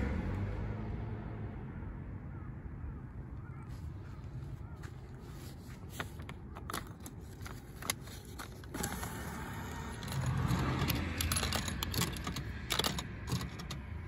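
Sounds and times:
banknote clicks and rustles: 4.3 - 14.0.

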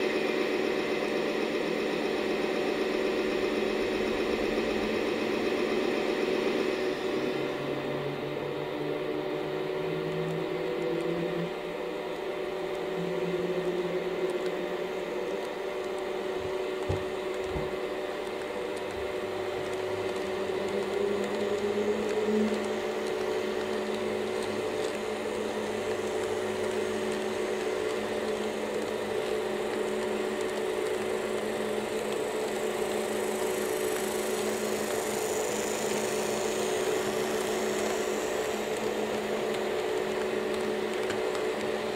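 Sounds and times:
model train motor hum: 0.0 - 41.9.

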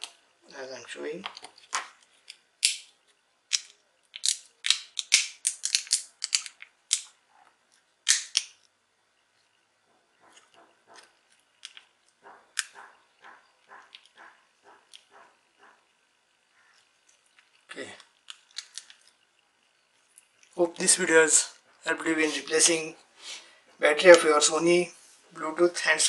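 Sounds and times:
plastic clicks and snaps: 3.5 - 8.7, 17.4 - 19.2.

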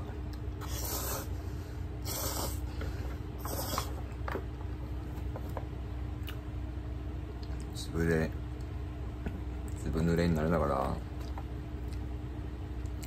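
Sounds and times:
person slurping noodles: 0.6 - 1.4, 2.0 - 2.7, 3.4 - 4.0.

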